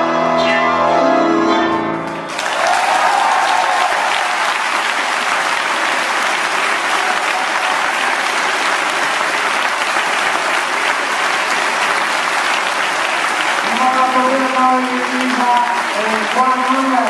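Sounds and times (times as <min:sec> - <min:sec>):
tango music: 0:00.0 - 0:02.3
audience applause: 0:02.1 - 0:17.0.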